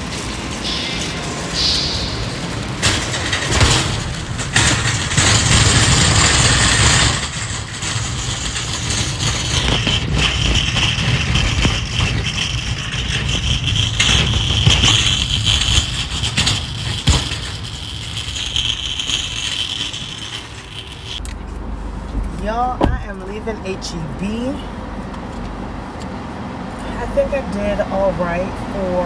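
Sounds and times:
metal basket rattling: 0.0s - 21.2s
cart wheels rolling rumble: 0.0s - 26.0s.

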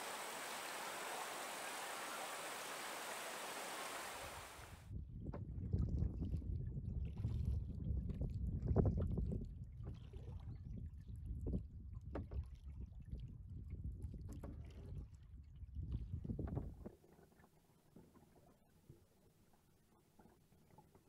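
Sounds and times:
paddle splashes: 0.0s - 4.8s
water lapping at kayak hull: 0.0s - 4.8s
wind rumble on microphone: 4.1s - 16.9s.

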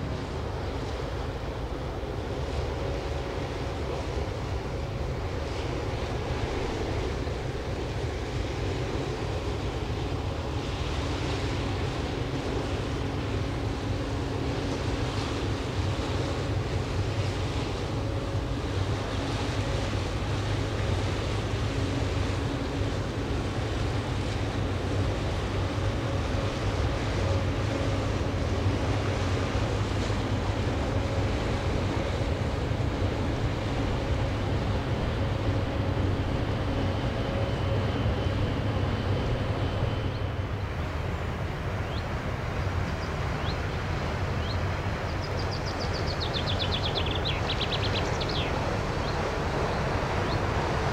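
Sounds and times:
faint hum tones: 0.0s - 50.9s
ship engines rumbling: 0.0s - 50.9s
bird chirps: 45.2s - 48.5s.

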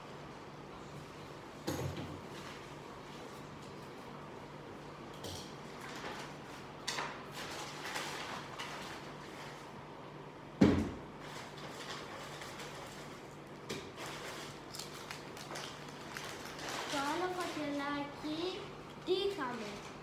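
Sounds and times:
paper rustling and crinkling: 5.7s - 6.7s, 7.3s - 9.8s, 11.2s - 18.2s, 19.0s - 20.0s.

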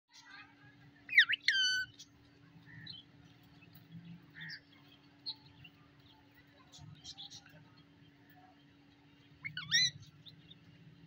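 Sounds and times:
parakeet loud cry: 1.1s - 1.9s, 9.4s - 10.0s
parakeet chirping: 1.1s - 2.0s, 9.4s - 10.1s.

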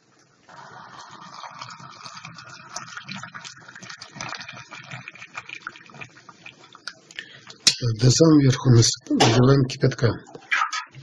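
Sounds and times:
water pouring into glass jar: 0.5s - 6.8s.

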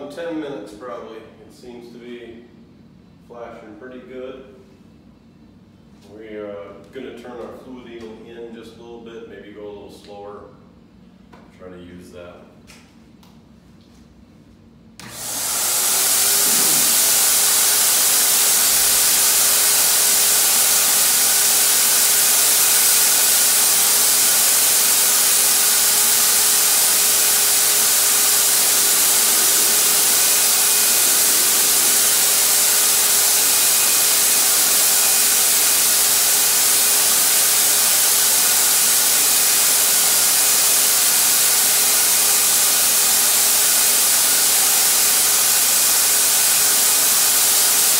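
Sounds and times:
paint sprayer turbine hissing: 15.0s - 47.9s
steady hum: 15.7s - 19.2s, 23.0s - 34.8s.

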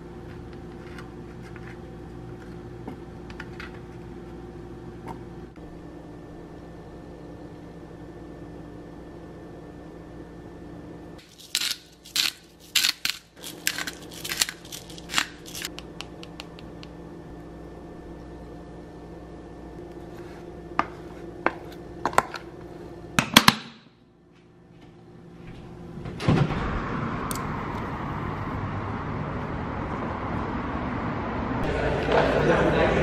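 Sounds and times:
low hum: 23.9s - 33.0s.

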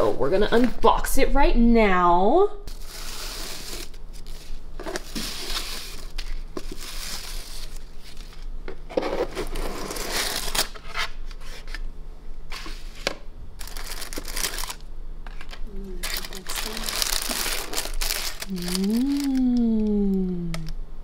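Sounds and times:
tissue paper rustling: 16.0s - 19.3s.

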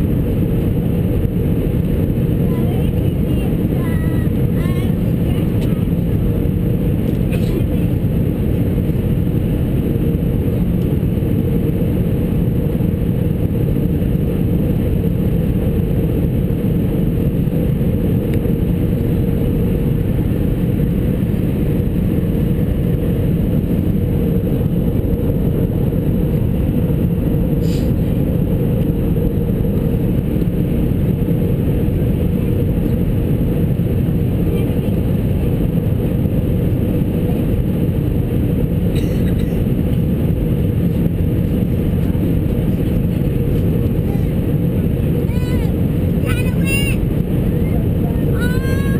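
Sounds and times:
jet engine cabin rumble: 0.0s - 48.9s.

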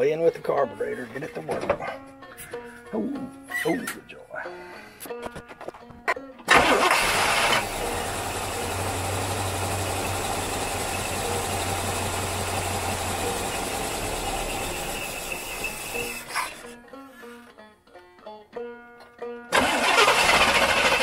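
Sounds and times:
car engine starting and running: 6.5s - 16.6s, 19.5s - 21.0s.

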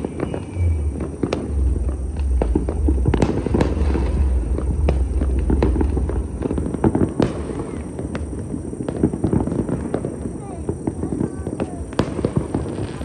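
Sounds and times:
low rumble: 0.0s - 8.9s
fireworks crackling and banging: 0.0s - 13.0s.

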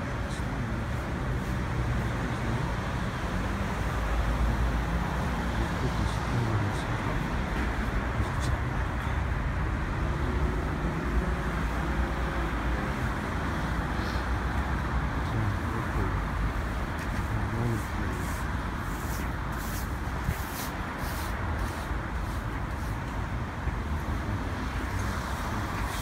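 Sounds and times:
traffic rumble: 0.0s - 26.0s
faint voices: 5.5s - 7.2s, 15.1s - 16.4s, 17.0s - 18.5s.

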